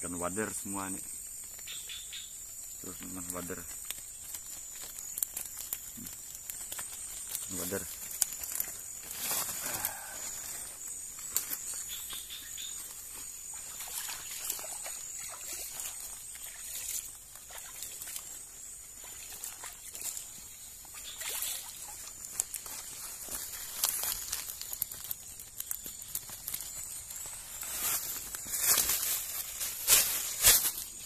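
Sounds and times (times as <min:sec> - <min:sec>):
high-pitched insect drone: 0:00.1 - 0:29.4
mesh rustling on leaves: 0:00.5 - 0:31.0
water trickling and dripping: 0:13.4 - 0:27.4.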